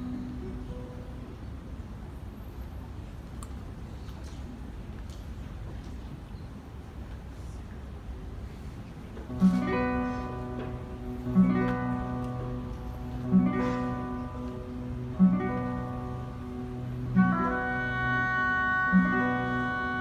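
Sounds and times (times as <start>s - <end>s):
string orchestra: 9.2s - 20.0s
classical guitar strumming chords: 9.3s - 20.0s.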